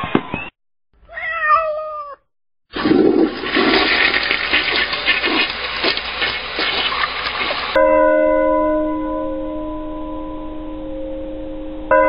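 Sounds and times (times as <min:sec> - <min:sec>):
cat meowing: 0:01.0 - 0:02.2
toilet flushing: 0:02.7 - 0:07.8.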